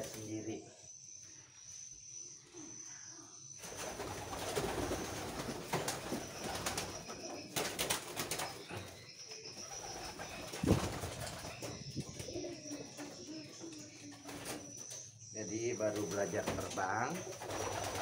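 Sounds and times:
wings flapping: 0:03.6 - 0:08.8, 0:09.6 - 0:12.4, 0:16.0 - 0:18.0
pigeons cooing: 0:03.6 - 0:18.0.

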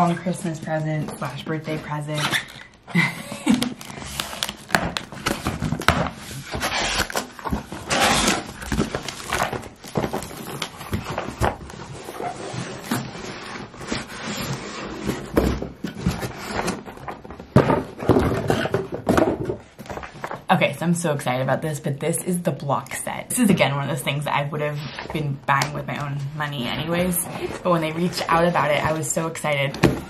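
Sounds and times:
cardboard box rustling and scraping: 0:05.2 - 0:20.4, 0:26.7 - 0:29.3.

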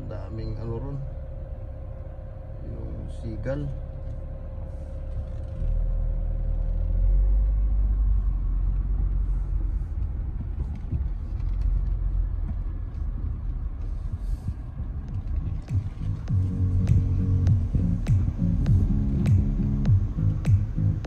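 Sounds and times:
car driving road and engine noise: 0:00.0 - 0:21.0
faint steady hum: 0:00.0 - 0:21.0.

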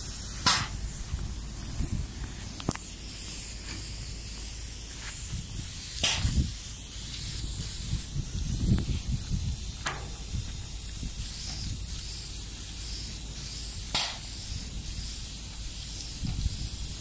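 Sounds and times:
low rumble: 0:00.0 - 0:04.4
paint spray gun hissing: 0:00.0 - 0:17.0.

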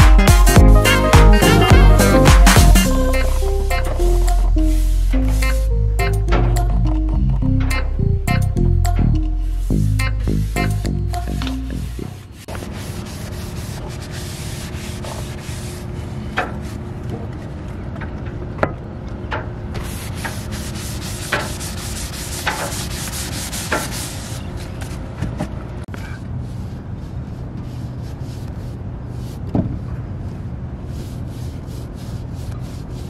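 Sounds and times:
brush rubbing on plywood: 0:01.0 - 0:05.6, 0:09.4 - 0:16.8, 0:19.8 - 0:24.8, 0:26.4 - 0:29.5, 0:30.3 - 0:33.0.

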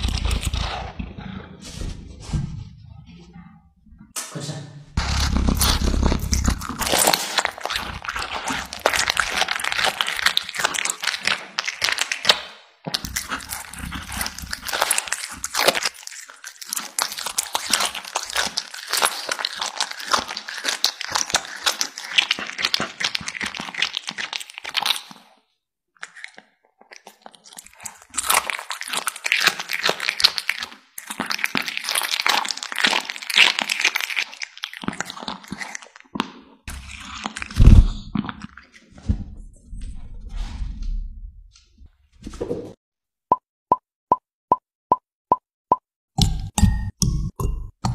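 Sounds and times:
cat chewing meat: 0:05.0 - 0:12.4, 0:13.0 - 0:25.2, 0:26.1 - 0:37.6.

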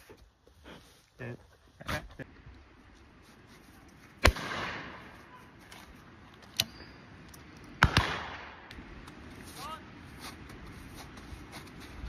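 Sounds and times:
shotgun firing with echo: 0:04.2 - 0:05.0, 0:07.8 - 0:08.6.

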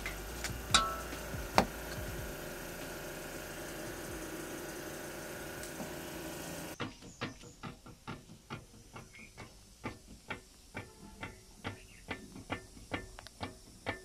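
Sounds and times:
mechanical drone: 0:00.0 - 0:06.8.

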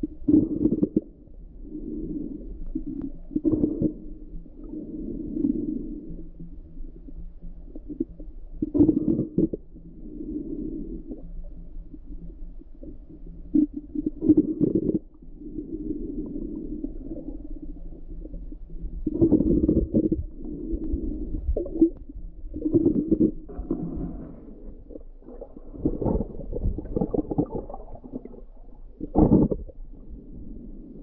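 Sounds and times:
underwater rumble of moving water: 0:00.0 - 0:31.0
water surges: 0:22.5 - 0:29.9.

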